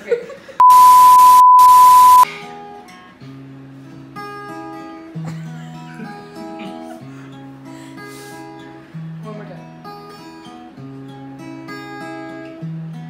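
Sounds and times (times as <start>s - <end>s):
electronic beep: 0.6s - 2.3s.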